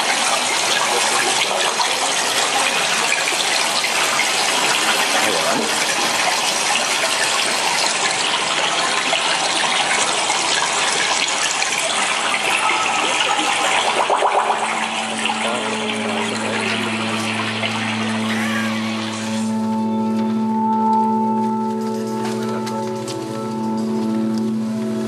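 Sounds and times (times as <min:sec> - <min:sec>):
water gushing: 0:00.0 - 0:19.6
low steady hum: 0:12.0 - 0:21.6.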